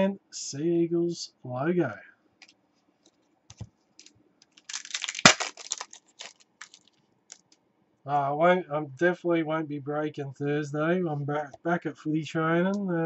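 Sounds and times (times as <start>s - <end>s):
foil pack crinkling and tearing: 4.5s - 7.4s.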